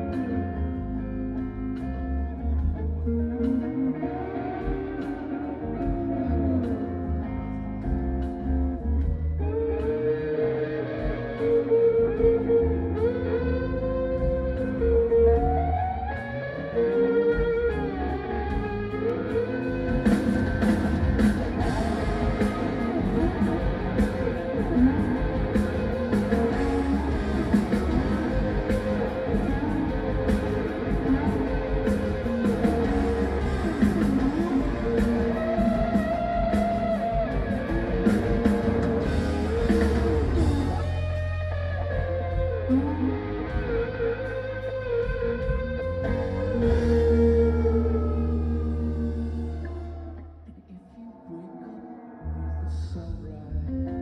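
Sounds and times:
bass line: 0.0s - 50.8s, 52.2s - 54.0s
electric guitar lead notes: 0.0s - 54.0s
drum kit with cymbals: 19.8s - 42.8s.

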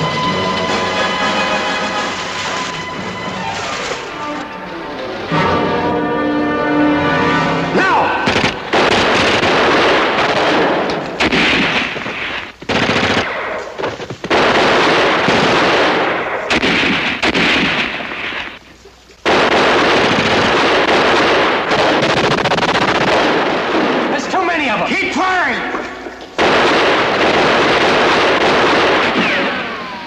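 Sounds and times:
gunshots: 7.8s - 18.6s, 19.2s - 30.0s
machine-gun fire: 8.1s - 18.6s, 19.2s - 24.8s, 26.4s - 30.0s.

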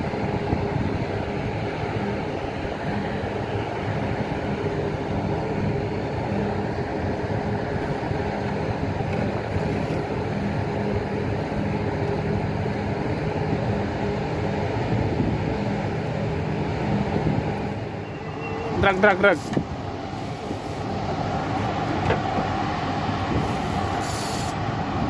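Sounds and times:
boat engine droning: 0.0s - 25.0s
wind: 0.0s - 25.0s
sea noise: 14.8s - 25.0s.

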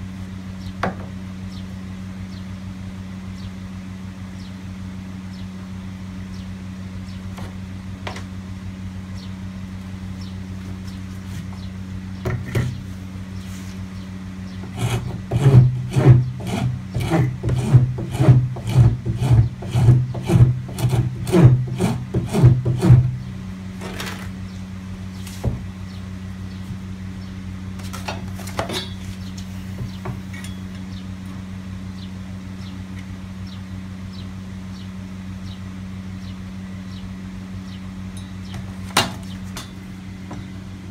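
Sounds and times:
steady low hum: 0.0s - 40.9s
file rasping on wood: 14.6s - 23.2s.

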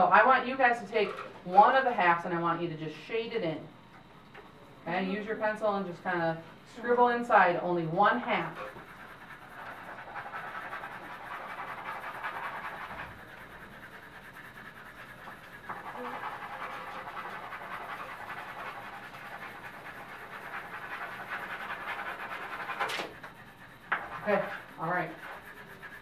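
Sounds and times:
pencils scribbling on paper: 7.8s - 26.0s.

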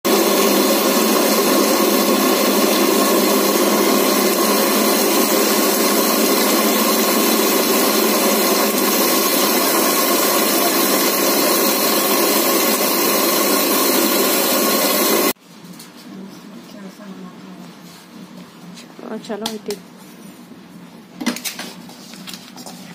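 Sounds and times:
mixer grinder running at high speed: 0.0s - 15.4s.

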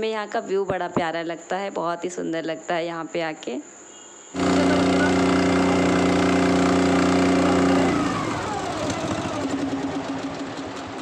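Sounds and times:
motorboat engine running: 4.4s - 11.0s.

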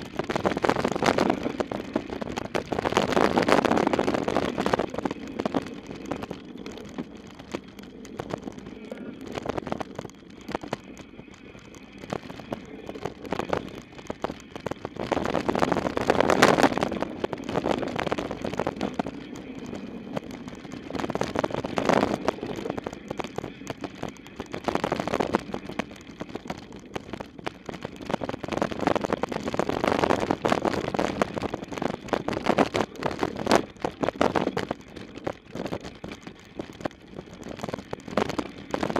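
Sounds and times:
bike rattling and knocking: 0.0s - 38.9s
tyres rolling on loose dirt: 0.0s - 38.9s
wind rushing over microphone: 0.0s - 38.9s.

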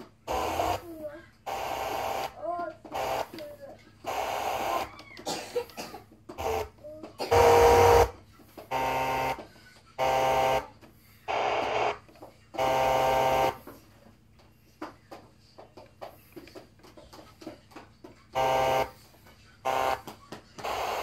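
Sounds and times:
radio hiss and buzzy tones: 20.6s - 21.0s.

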